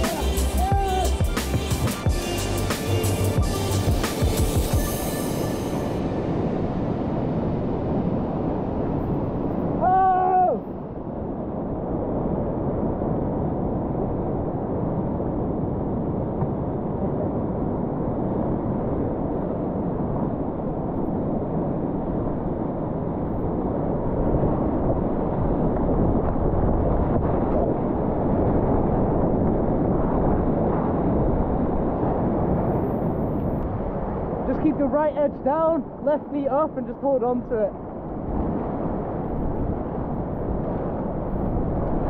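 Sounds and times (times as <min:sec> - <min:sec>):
whitewater rapids rushing: 0:00.0 - 0:05.8.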